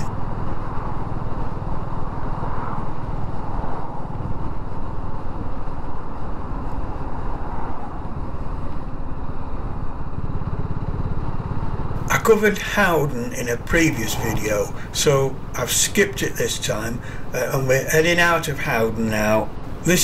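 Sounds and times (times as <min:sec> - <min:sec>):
wind noise on microphone: 0:00.0 - 0:10.7
motorcycle engine running: 0:09.1 - 0:12.1.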